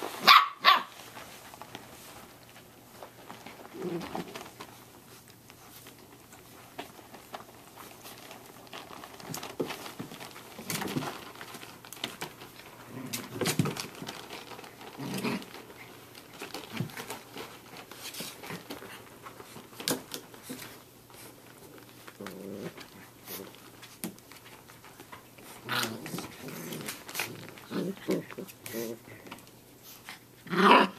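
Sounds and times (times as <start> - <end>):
puppies scuffling on blankets: 0.0 - 30.9
puppy growls: 3.6 - 4.6, 12.7 - 17.1, 21.6 - 23.6, 25.5 - 29.5, 30.4 - 30.9.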